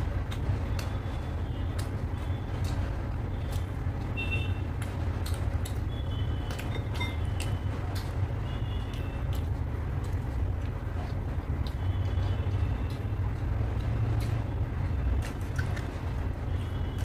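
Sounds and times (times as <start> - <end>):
chewing clicks: 0.0 - 4.1, 4.7 - 17.0
steady low rumble: 0.0 - 17.0.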